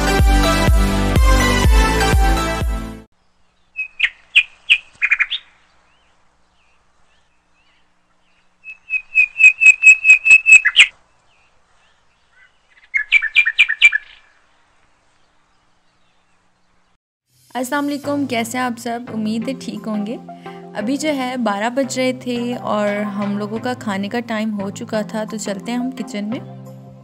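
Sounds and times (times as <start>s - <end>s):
small bird chirping: 3.2s - 17.0s.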